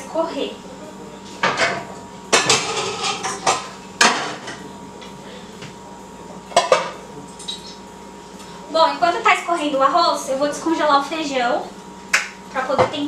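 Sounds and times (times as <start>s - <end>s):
cookware clanking: 1.4s - 4.6s, 6.5s - 7.0s.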